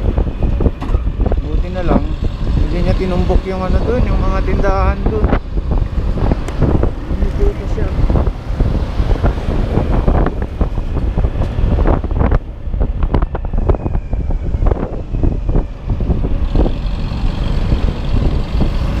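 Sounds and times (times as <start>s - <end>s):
road noise: 0.0s - 19.0s
wind buffeting microphone: 0.0s - 19.0s.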